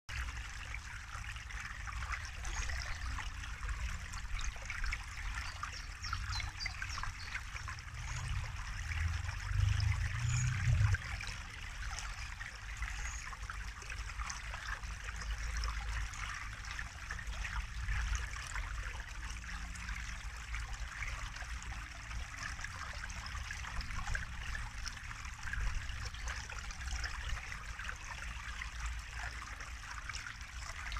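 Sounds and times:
stream trickling and splashing: 0:00.1 - 0:30.9
low rumble: 0:07.7 - 0:11.4.

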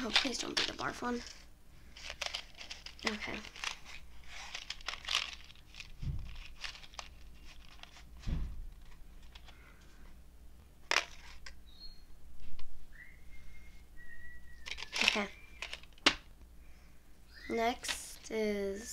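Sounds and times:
box crinkling and rustling: 0:00.0 - 0:01.4, 0:02.0 - 0:09.5, 0:14.7 - 0:16.1
low thumps: 0:06.0 - 0:06.4, 0:08.2 - 0:08.9.

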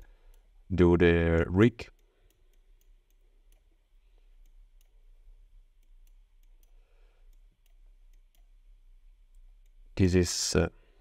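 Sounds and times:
computer mouse clicking: 0:01.3 - 0:05.0, 0:05.8 - 0:08.6.

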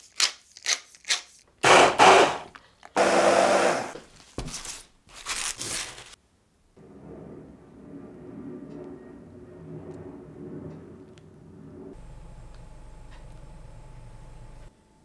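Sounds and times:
cauliflower leaves rustling: 0:04.6 - 0:06.2
faint low hum: 0:06.7 - 0:15.0.

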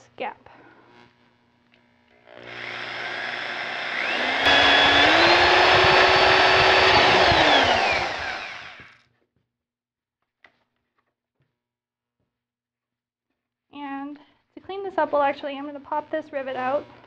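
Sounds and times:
electric drill whining: 0:02.2 - 0:09.0.

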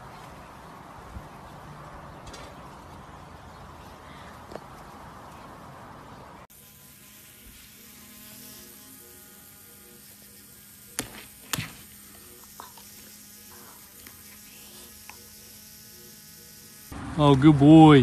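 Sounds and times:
electric toothbrush buzzing: 0:06.5 - 0:17.0.

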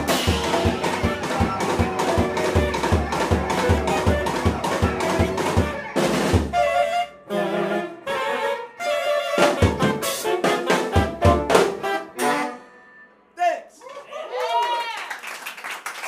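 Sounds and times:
drum hits: 0:00.0 - 0:06.8, 0:09.5 - 0:12.0
sustained saxophone notes: 0:00.0 - 0:13.1
live band playing: 0:00.0 - 0:13.2.

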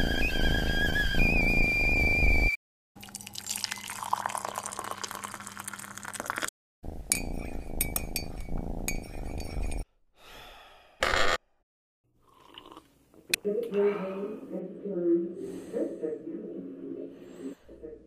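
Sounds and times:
liquid pouring into teacup: 0:03.0 - 0:06.5, 0:12.3 - 0:12.9.

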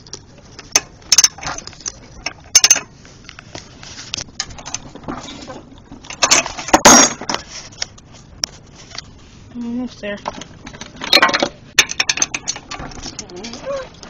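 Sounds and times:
metal clatter: 0:04.4 - 0:07.4, 0:10.1 - 0:14.0.

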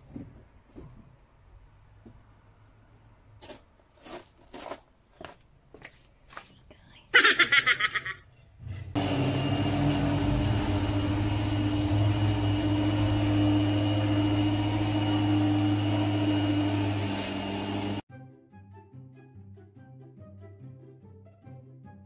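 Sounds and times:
lawnmower motor running: 0:08.9 - 0:18.0.

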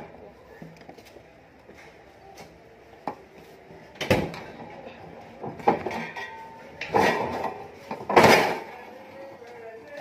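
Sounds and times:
dishes clattering on a trolley: 0:05.4 - 0:08.8.

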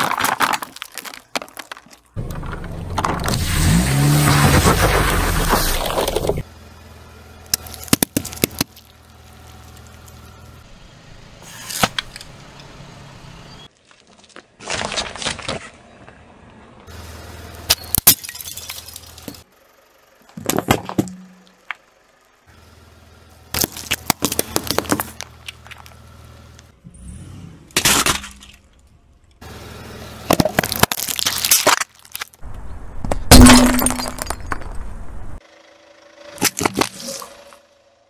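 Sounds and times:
tyre crushing objects: 0:00.0 - 0:06.4
low engine hum: 0:02.2 - 0:13.7, 0:21.1 - 0:27.8.

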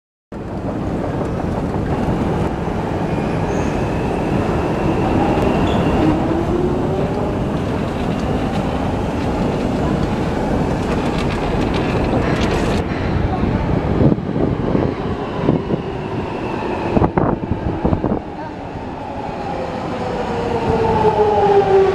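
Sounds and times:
train rumbling in station: 0:00.3 - 0:21.9.

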